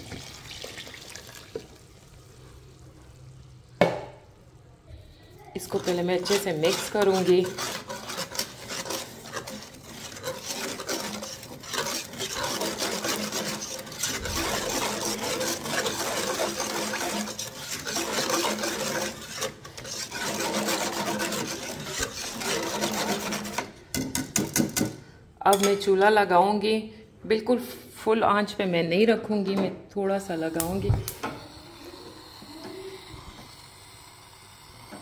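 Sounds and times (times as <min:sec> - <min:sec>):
whisk scraping pan: 0:05.5 - 0:24.6.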